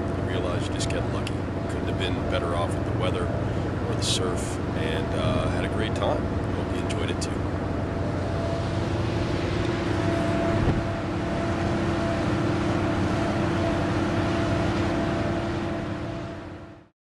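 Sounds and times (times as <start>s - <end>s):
churning wake: 0.0s - 16.9s
ferry engines droning: 0.0s - 16.9s
wind rushing: 8.2s - 13.5s.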